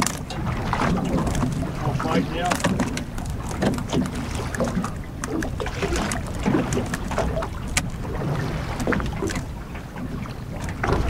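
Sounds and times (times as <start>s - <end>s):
water washing against boat hull: 0.0s - 11.0s
wind buffeting microphone: 0.0s - 11.0s.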